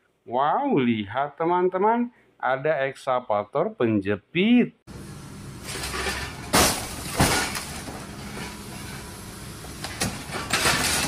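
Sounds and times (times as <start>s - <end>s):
excavator engine hum: 4.9s - 11.0s
car crashing with breaking glass: 5.6s - 9.0s, 9.7s - 11.0s.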